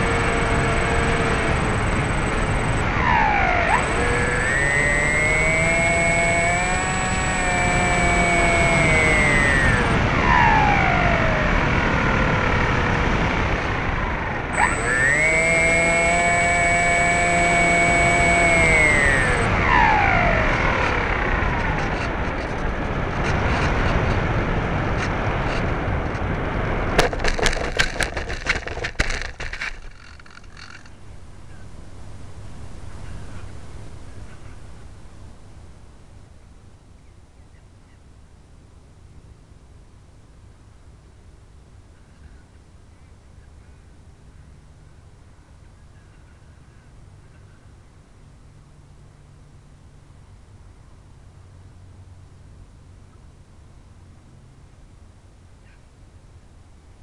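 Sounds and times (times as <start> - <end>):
electric motor and propeller whining: 0.0 - 36.2
plane knocking and scraping on dirt: 27.0 - 31.6.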